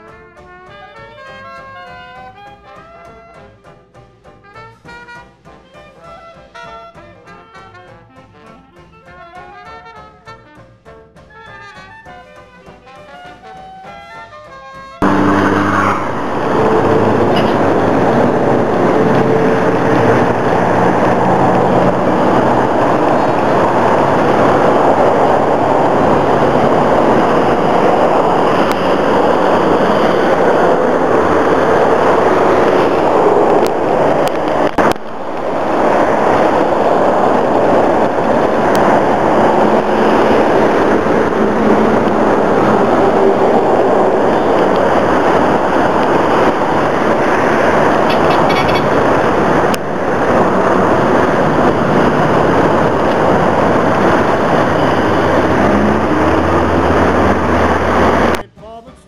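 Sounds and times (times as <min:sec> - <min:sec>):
dense motorway traffic: 0:00.0 - 0:58.5
heavy vehicle rumble: 0:00.0 - 0:58.5.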